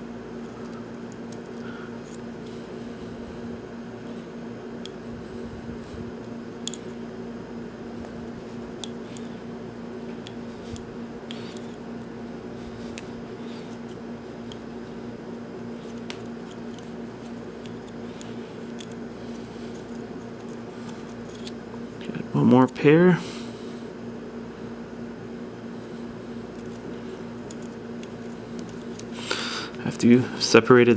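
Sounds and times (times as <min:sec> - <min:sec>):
steady low hum: 0:00.0 - 0:30.9
cable wires clicking and rustling: 0:15.3 - 0:22.2, 0:26.5 - 0:29.2.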